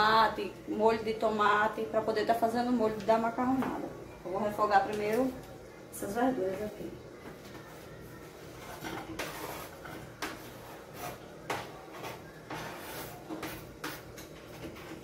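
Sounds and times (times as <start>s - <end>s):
onion scraped off cutting board: 8.6s - 11.3s.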